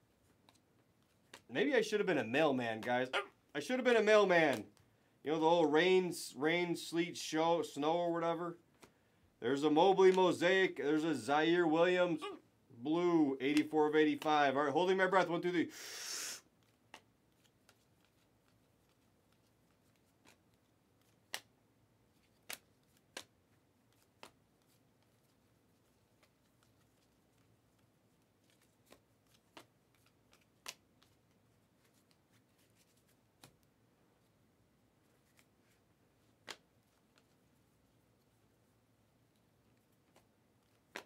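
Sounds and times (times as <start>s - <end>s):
trading cards clicking: 10.1s - 10.3s, 22.1s - 25.3s, 28.4s - 33.6s, 40.0s - 41.0s.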